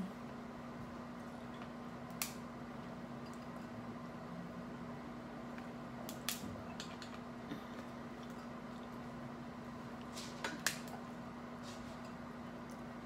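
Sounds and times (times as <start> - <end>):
steady low hum: 0.0 - 13.0
shells cracking and snapping: 2.0 - 2.5, 6.0 - 7.3, 10.6 - 11.0.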